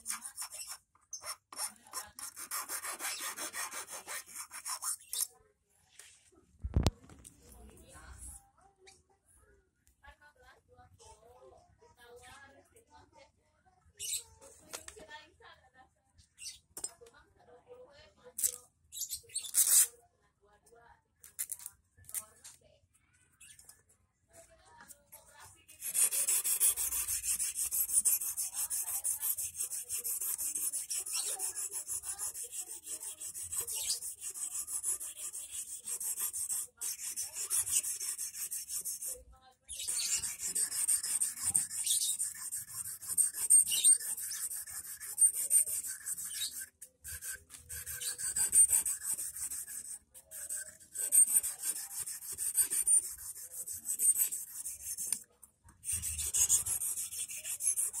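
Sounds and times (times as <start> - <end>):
abrasive scraping steel wire: 39.8 - 55.2.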